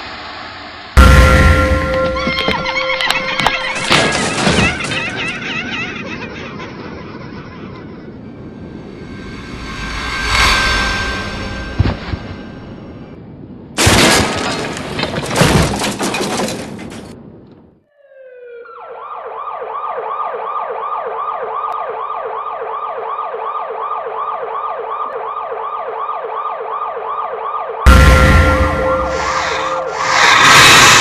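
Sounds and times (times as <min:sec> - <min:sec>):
sudden loud hit: 0:00.3 - 0:02.8, 0:08.6 - 0:13.4, 0:27.9 - 0:31.0
crash with shattering glass: 0:01.0 - 0:05.1, 0:13.8 - 0:17.2
siren yelping warble: 0:01.8 - 0:04.0, 0:17.9 - 0:31.0.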